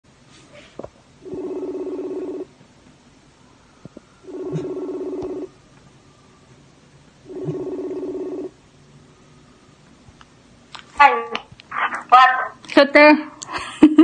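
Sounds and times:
phone ringback tone: 4.2s - 5.5s.

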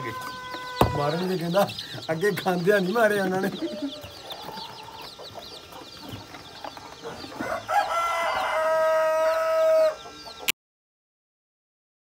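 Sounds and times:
rooster crowing: 0.0s - 1.3s, 7.4s - 10.0s
chicks cheeping: 0.0s - 10.5s.

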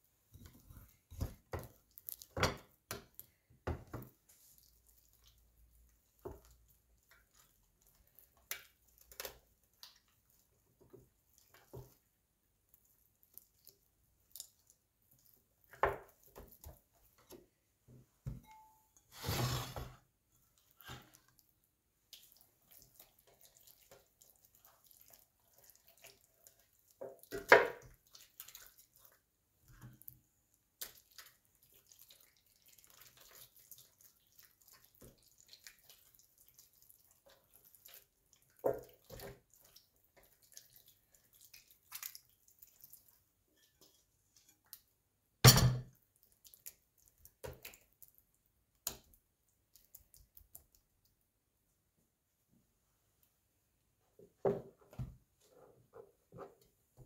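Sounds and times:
hands squelching marinade into chicken: 4.1s - 17.4s, 20.3s - 45.1s, 45.9s - 51.5s.

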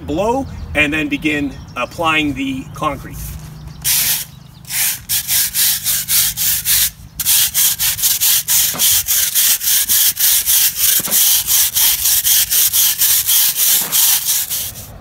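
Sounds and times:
broom scrubbing asphalt: 3.0s - 15.0s.

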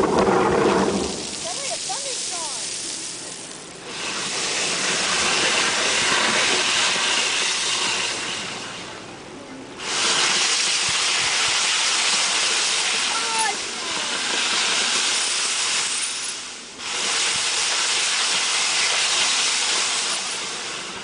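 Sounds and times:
geyser water jet rushing hiss: 0.0s - 21.0s.

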